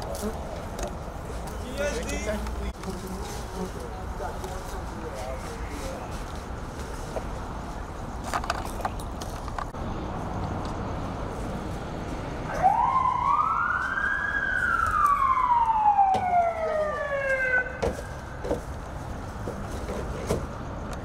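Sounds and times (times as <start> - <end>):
emergency siren wailing: 12.4 - 17.8.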